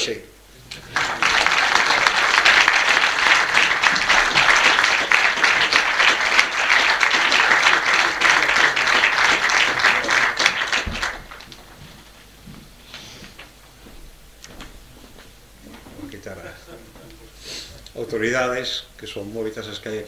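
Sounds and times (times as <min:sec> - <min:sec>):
audience applauding: 0:00.6 - 0:11.8.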